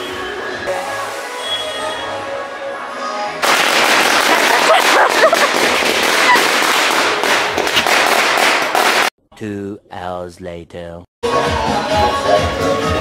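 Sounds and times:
music: 0:00.0 - 0:03.4, 0:11.2 - 0:13.0
firecrackers crackling: 0:03.4 - 0:09.1.

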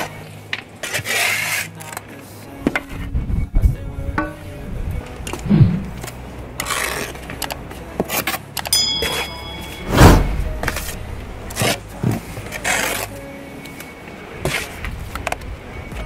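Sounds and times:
trowel scraping and slapping mortar: 0:00.8 - 0:02.0, 0:05.8 - 0:07.3, 0:10.6 - 0:13.2
wind rumbling on microphone: 0:02.9 - 0:06.3
heavy thud: 0:05.4 - 0:06.0, 0:09.8 - 0:10.8
short electronic chime: 0:08.8 - 0:10.5.

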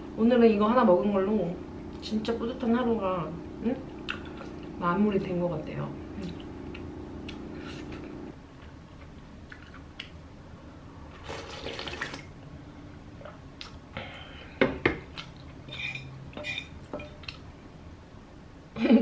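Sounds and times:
person slurping soup: 0:07.4 - 0:08.0
metal spoon clinking on bowl: 0:15.7 - 0:17.2.

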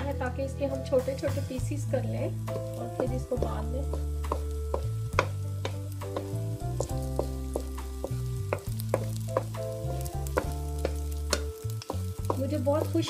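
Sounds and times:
background music with held chords: 0:00.0 - 0:13.0
eggs sizzling in frying pan: 0:00.0 - 0:13.0
wooden spatula knocking on pan: 0:02.5 - 0:13.0.

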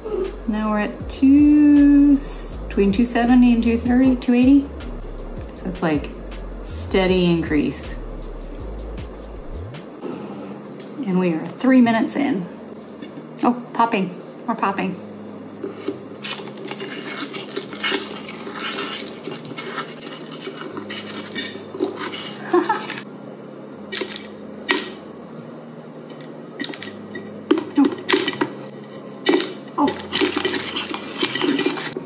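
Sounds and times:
low steady hum: 0:00.0 - 0:32.0
metal straw clinking against pot: 0:16.3 - 0:23.0
popcorn kernels popping: 0:23.9 - 0:25.0, 0:26.6 - 0:32.0.

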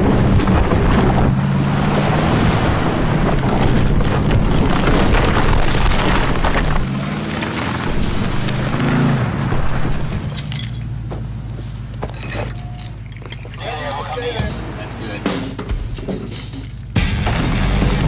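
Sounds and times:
truck engine pulling under load: 0:00.0 - 0:18.0
tyres churning dirt: 0:00.0 - 0:18.0
music with low notes: 0:13.8 - 0:18.0.

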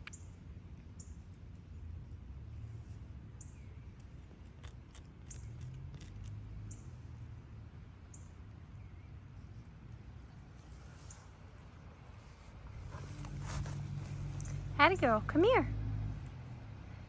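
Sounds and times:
cat chewing grass: 0:00.4 - 0:07.9.

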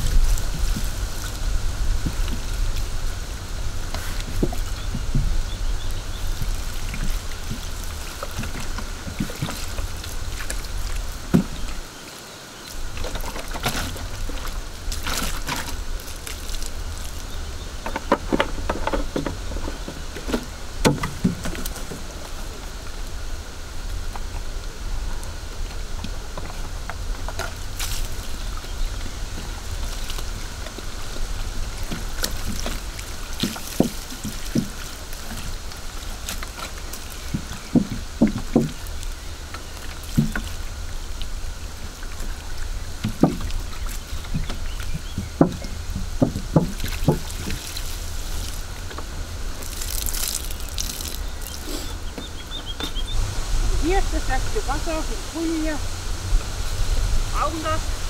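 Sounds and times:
jug glugging: 0:00.0 - 0:11.9, 0:12.8 - 0:55.8
water pouring onto soil: 0:00.0 - 0:17.9, 0:24.3 - 0:52.2.

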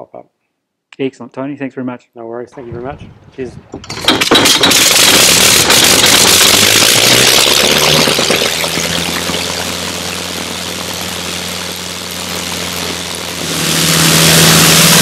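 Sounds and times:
rotary aero engine running: 0:03.9 - 0:15.0.

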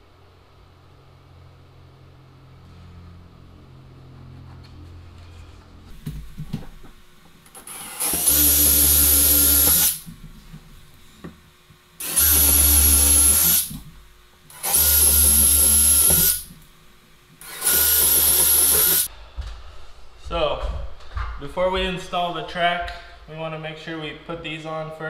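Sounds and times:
cordless drill boring into wall: 0:07.6 - 0:10.1, 0:12.0 - 0:13.8, 0:14.5 - 0:16.5, 0:17.4 - 0:19.1.

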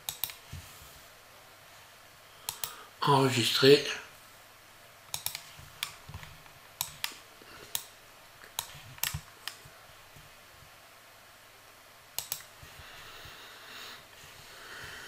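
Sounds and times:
computer mouse clicking: 0:00.0 - 0:00.5, 0:02.4 - 0:02.8, 0:05.1 - 0:10.3, 0:12.2 - 0:12.8.

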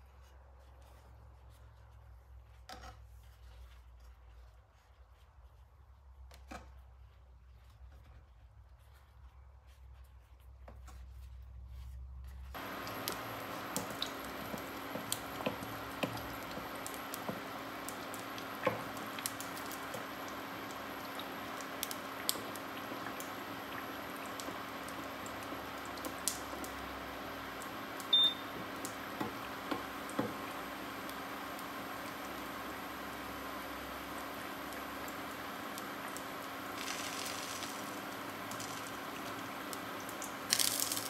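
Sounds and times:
food sizzling in oil: 0:12.6 - 0:41.0
short high beep: 0:28.1 - 0:28.4.

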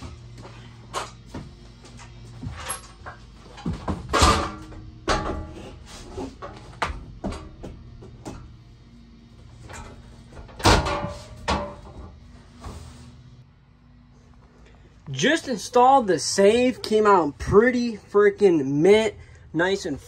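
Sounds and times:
metal safe knocking and clunking: 0:09.7 - 0:12.2.

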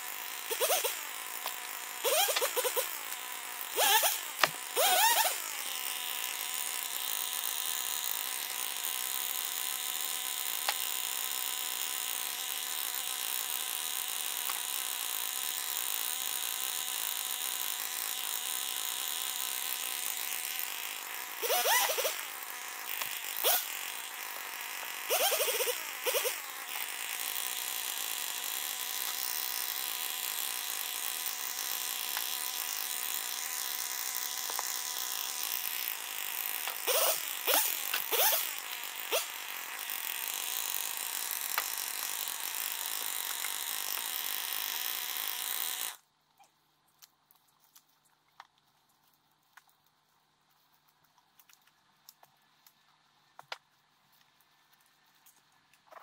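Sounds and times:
chainsaw idling and revving: 0:00.0 - 0:46.1.

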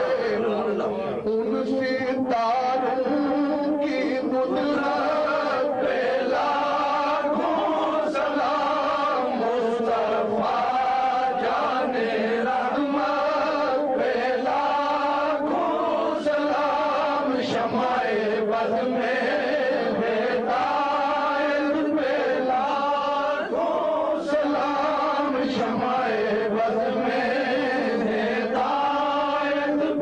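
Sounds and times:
voices chanting: 0:03.1 - 0:30.0.

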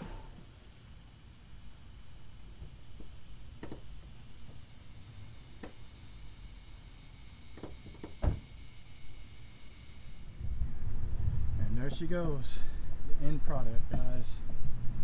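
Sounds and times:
low outdoor rumble: 0:10.0 - 0:15.0.

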